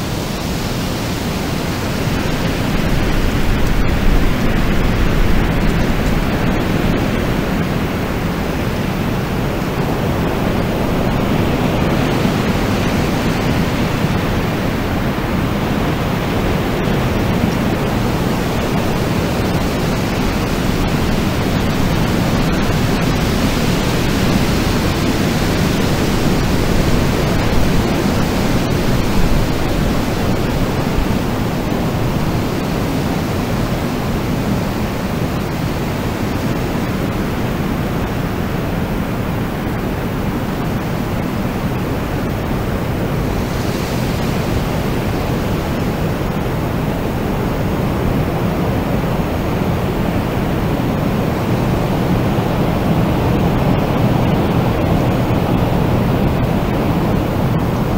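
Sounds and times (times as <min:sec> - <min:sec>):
rushing wind: 0:00.0 - 0:57.9.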